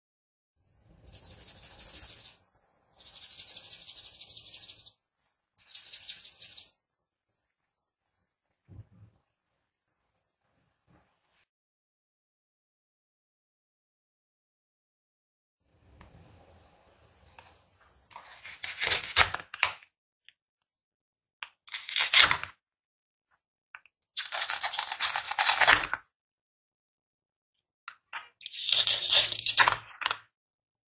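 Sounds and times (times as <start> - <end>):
velcro ripping apart: 18.5 - 19.5, 21.7 - 22.5, 24.2 - 25.9, 28.5 - 29.8.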